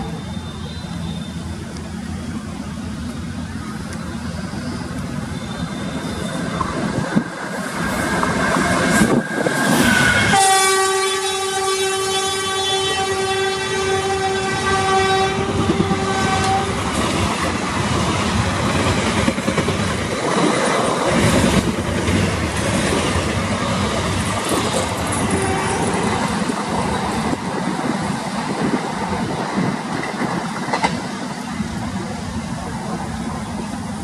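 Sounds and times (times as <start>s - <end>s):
train coaches rumbling past: 0.0s - 34.0s
locomotive horn: 9.8s - 17.0s, 25.0s - 26.4s.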